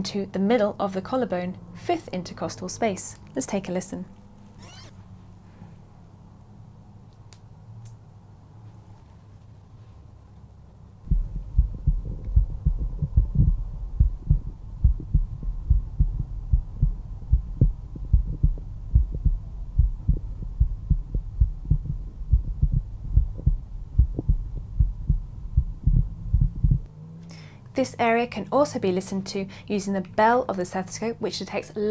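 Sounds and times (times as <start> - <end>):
heartbeat through stethoscope: 11.0 - 26.9.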